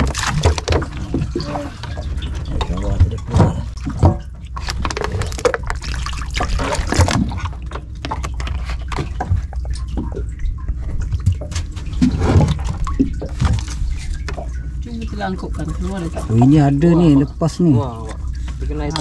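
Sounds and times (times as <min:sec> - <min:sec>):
knocks and clatter: 0:00.0 - 0:14.6
water splashing and dripping: 0:00.0 - 0:19.0.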